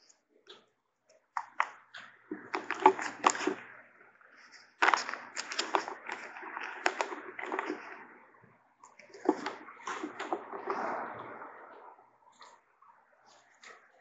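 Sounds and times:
thin paper pages rustling: 0:02.3 - 0:03.6, 0:04.3 - 0:08.0, 0:09.0 - 0:10.8.

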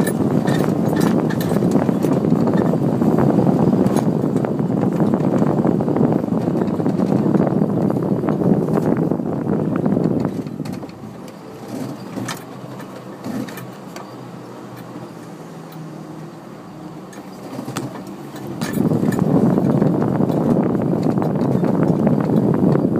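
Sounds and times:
body knocks and rattles: 0:00.0 - 0:09.2, 0:17.1 - 0:22.9
vehicle engine running low: 0:00.0 - 0:22.9.

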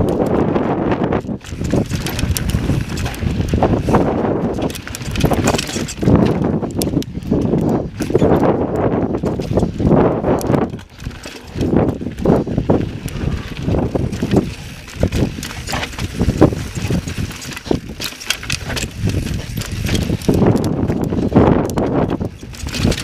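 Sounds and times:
bike clacking and rattling on rocks: 0:00.0 - 0:23.0
wind buffeting microphone: 0:00.0 - 0:23.0.

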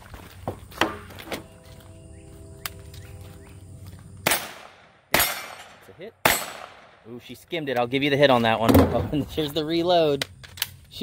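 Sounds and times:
faint steady ringing tone: 0:01.0 - 0:04.2
gunshots: 0:04.2 - 0:07.0.

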